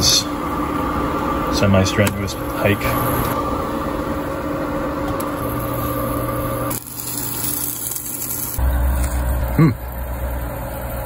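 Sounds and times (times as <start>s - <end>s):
motor hum with held tones: 0.0s - 11.0s.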